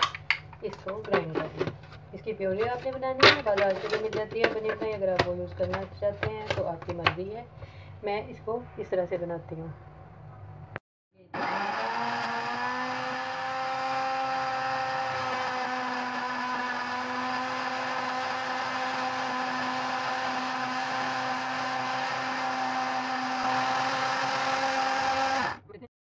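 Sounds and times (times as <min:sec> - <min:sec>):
blender motor whining: 0:11.3 - 0:25.7.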